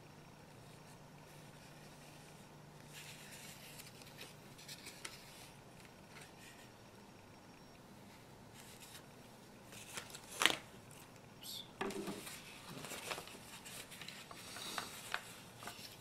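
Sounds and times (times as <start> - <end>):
paper crackling and rustling: 0.7 - 6.7, 8.5 - 11.1, 12.1 - 16.0.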